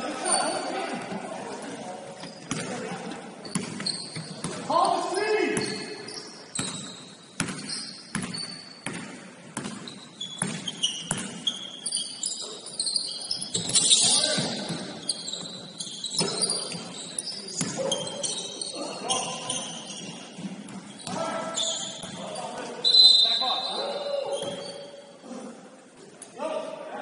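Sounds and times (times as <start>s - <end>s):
sneaker squeaks: 0.0s - 1.2s, 1.9s - 25.1s
basketball bouncing on gym floor: 3.4s - 4.7s, 6.5s - 11.6s.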